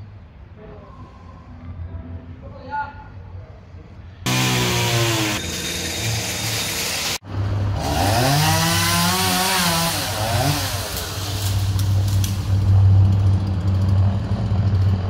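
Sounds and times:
chainsaw engine revving: 0:04.3 - 0:07.2, 0:07.8 - 0:12.8.

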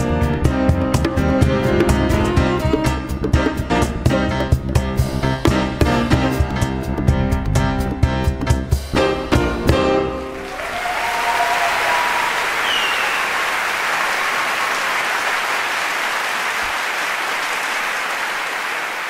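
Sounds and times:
live band playing: 0:00.0 - 0:10.4
audience applauding: 0:10.2 - 0:19.0
whistles: 0:11.3 - 0:14.8.

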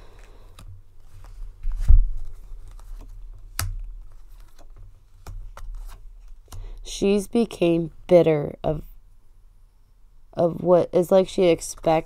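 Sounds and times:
cards clicking and rustling: 0:00.1 - 0:06.7.

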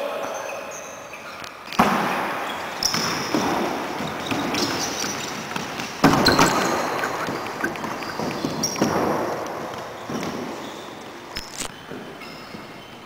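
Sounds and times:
shoe squeaks on wood floor: 0:00.2 - 0:13.0
ball hitting wooden floor: 0:01.8 - 0:10.7.

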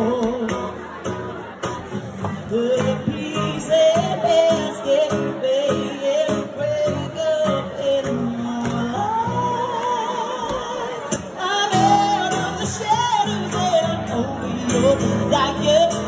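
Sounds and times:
woman and man singing: 0:00.0 - 0:00.9, 0:02.3 - 0:16.0
strummed acoustic guitars: 0:00.0 - 0:16.0.

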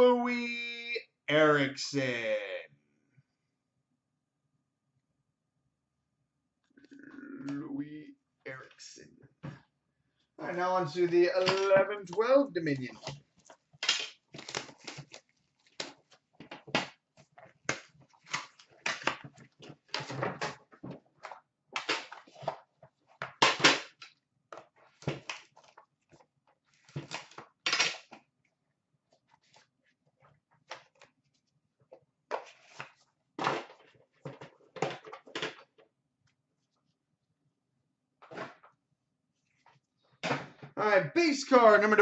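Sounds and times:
shrink wrap crinkling and tearing: 0:11.7 - 0:16.2
cardboard packaging handling: 0:12.9 - 0:21.4.

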